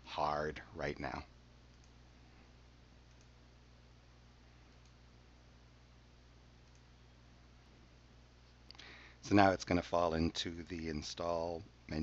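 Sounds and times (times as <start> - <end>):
low electrical hum: 0.0 - 12.0
very faint clicks: 1.7 - 2.0, 3.0 - 3.4, 4.7 - 5.0, 6.6 - 6.9.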